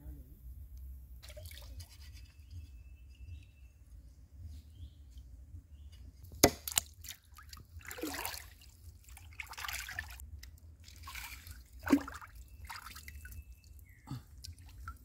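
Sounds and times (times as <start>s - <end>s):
cleaver striking wood: 6.4s - 6.9s
water sloshing: 6.4s - 10.2s, 10.8s - 13.7s.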